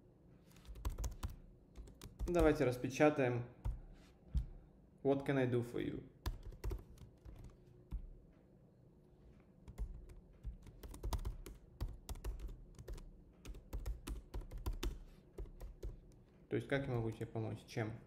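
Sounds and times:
keyboard typing: 0:00.5 - 0:02.8, 0:06.2 - 0:08.1, 0:09.6 - 0:17.6.

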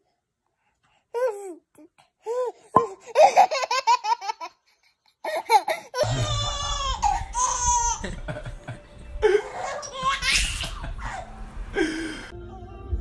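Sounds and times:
baby giggling: 0:02.3 - 0:08.1, 0:09.3 - 0:11.4
infant laughing: 0:02.3 - 0:08.2, 0:09.2 - 0:11.4.

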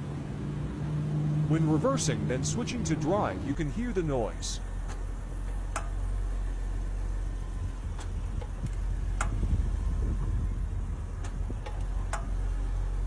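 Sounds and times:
low engine hum: 0:00.0 - 0:13.0
sharp clicks from rear wheel: 0:04.8 - 0:06.1, 0:07.8 - 0:09.5, 0:11.1 - 0:12.5.

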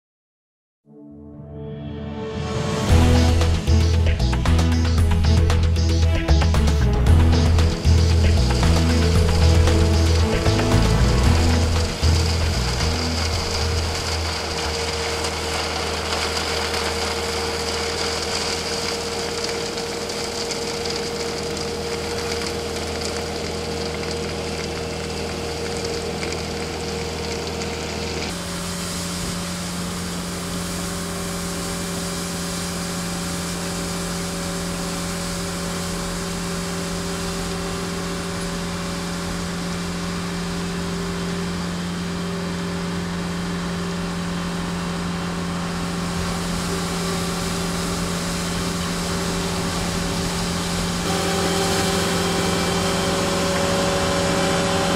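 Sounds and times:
loader engine running: 0:02.5 - 0:54.9
broom sweeping gravel: 0:06.9 - 0:40.6, 0:45.2 - 0:54.9.

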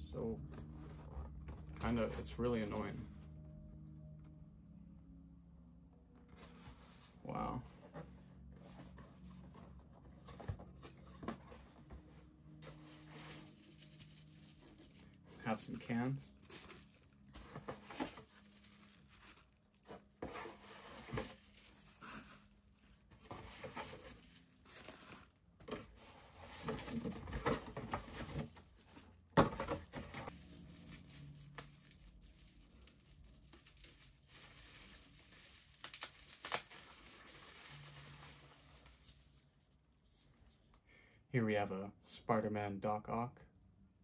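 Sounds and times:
bubble wrap and tape crumpling: 0:10.2 - 0:25.5, 0:29.8 - 0:40.7.

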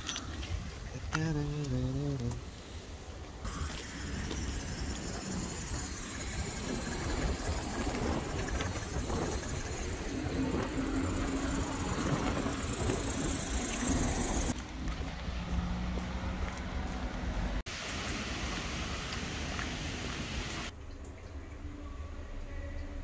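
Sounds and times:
road traffic passing: 0:02.3 - 0:20.7
wind buffeting microphone: 0:03.5 - 0:14.6.

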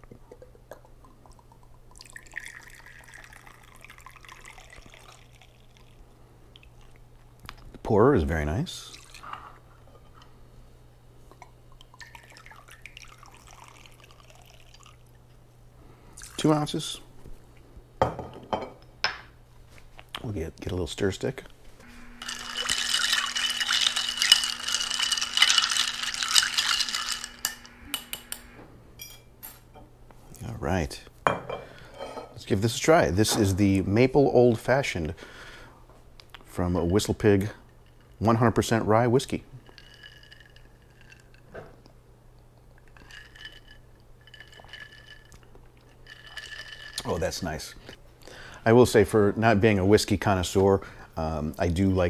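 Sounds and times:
liquid pouring into glass with ice: 0:01.2 - 0:06.0, 0:11.8 - 0:15.2, 0:22.1 - 0:28.4, 0:39.6 - 0:41.4, 0:42.8 - 0:47.7.

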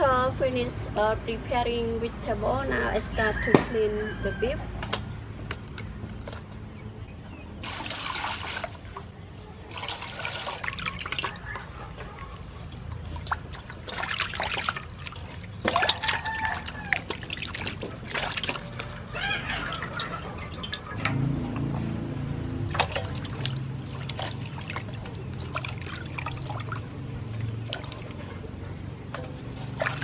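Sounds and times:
water splashing in metal basin: 0:07.6 - 0:21.7, 0:22.5 - 0:30.0.

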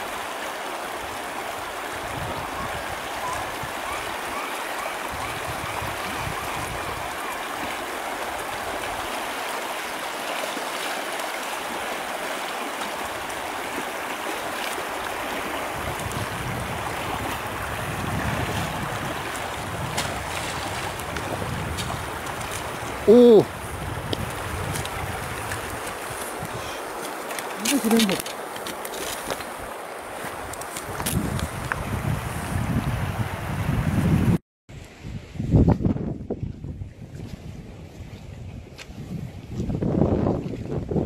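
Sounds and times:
river rushing over stones: 0:00.0 - 0:34.3
wind rumble on microphone: 0:01.8 - 0:04.2, 0:05.0 - 0:07.2, 0:15.2 - 0:26.8, 0:29.2 - 0:41.0.

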